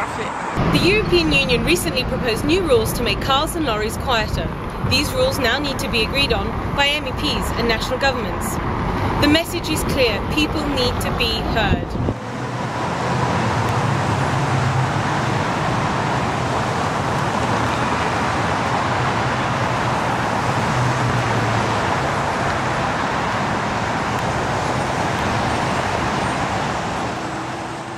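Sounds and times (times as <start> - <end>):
dense road traffic hum: 0.0 - 27.9.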